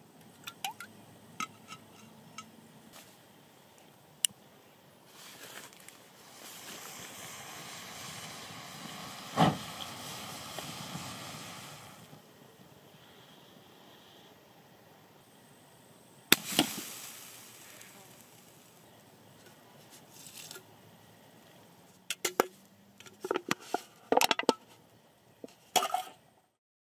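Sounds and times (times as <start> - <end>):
can clicking and knocking: 0.4 - 2.4, 22.1 - 24.7
hiss: 5.0 - 21.8
sharp pops: 6.6 - 12.2, 16.3 - 18.8.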